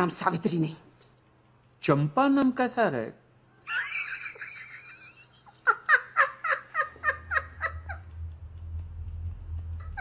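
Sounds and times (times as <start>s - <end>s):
man laughing hard: 3.8s - 8.2s
low steady hum: 4.7s - 10.0s.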